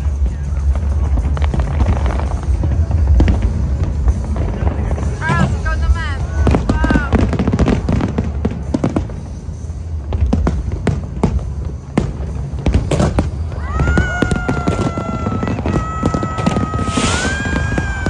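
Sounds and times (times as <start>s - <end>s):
fireworks bursting: 0.0s - 18.0s
high whistling tone: 15.6s - 18.0s.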